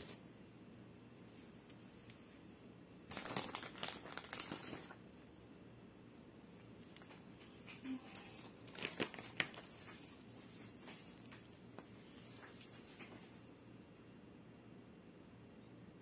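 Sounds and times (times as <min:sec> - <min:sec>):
plastic packet crinkling: 0:03.0 - 0:05.0, 0:08.2 - 0:11.6.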